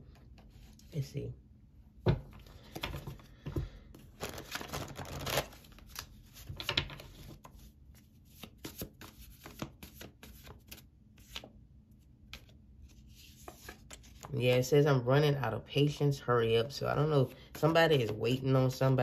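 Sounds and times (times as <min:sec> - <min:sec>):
cards being shuffled: 0:02.4 - 0:11.6, 0:12.2 - 0:14.3.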